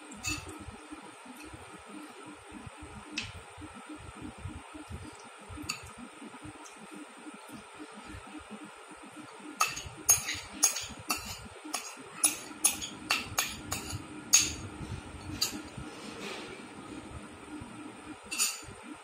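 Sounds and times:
metal spoon clinking on ceramic bowl: 9.6 - 14.6, 18.3 - 18.7.

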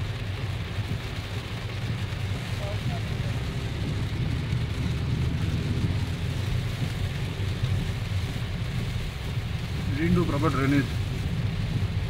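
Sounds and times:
car road rumble: 0.0 - 12.0
heavy rain on car roof: 0.0 - 12.0.

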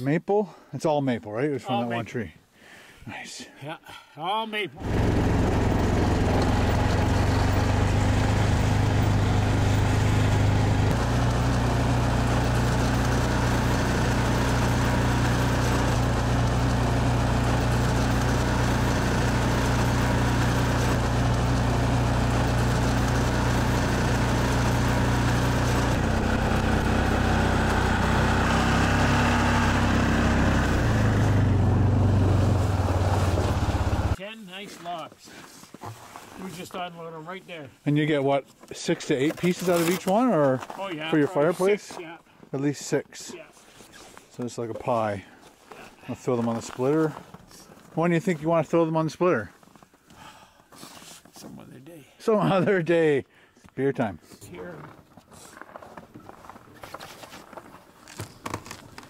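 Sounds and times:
atv engine running: 4.8 - 34.2.

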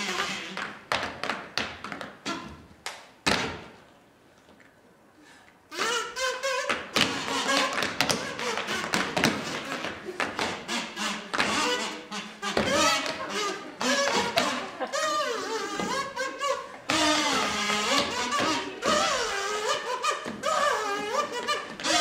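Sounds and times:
tap shoes on wooden floor: 0.2 - 3.7, 6.7 - 14.6, 15.7 - 16.3, 16.9 - 22.0.

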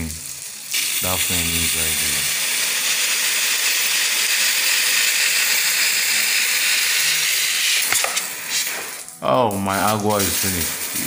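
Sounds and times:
water spray jet hissing: 0.7 - 11.0.

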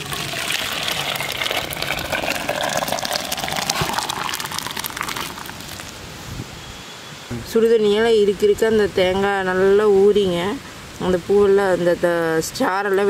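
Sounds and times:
water pouring into metal pot: 0.0 - 5.9.

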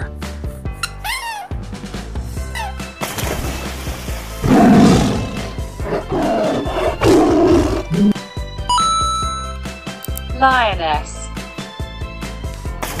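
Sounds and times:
background music: 0.0 - 13.0
tiger roaring: 4.4 - 8.2.

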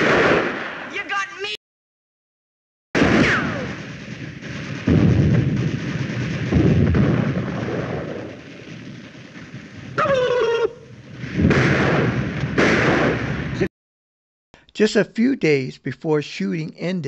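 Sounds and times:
gunfire: 0.0 - 1.2, 3.0 - 13.7
loud blasts: 0.0 - 1.2, 3.0 - 13.7
man imitating turkey gobble: 10.0 - 10.8.

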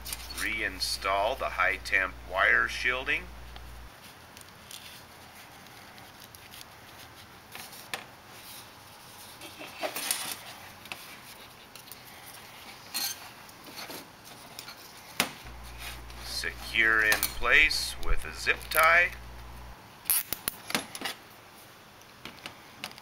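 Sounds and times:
clicks and rustles of wires: 3.4 - 8.1.

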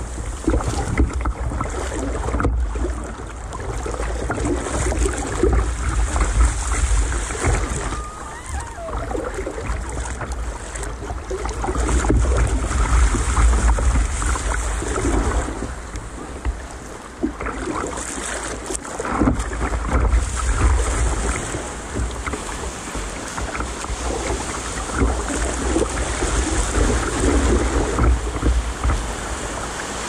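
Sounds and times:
wind buffeting microphone: 0.0 - 17.7, 19.0 - 29.9
water slapping against plastic hull: 0.0 - 30.0.

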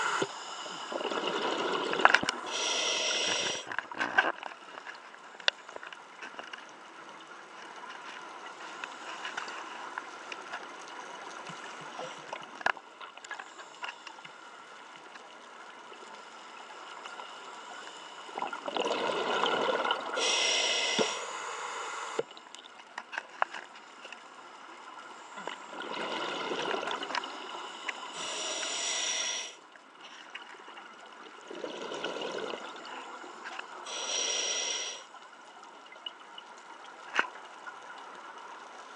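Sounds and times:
diver breathing through regulator: 0.0 - 3.7, 20.2 - 22.3, 25.2 - 29.6, 33.8 - 35.1
faint underwater hiss: 0.0 - 38.9.

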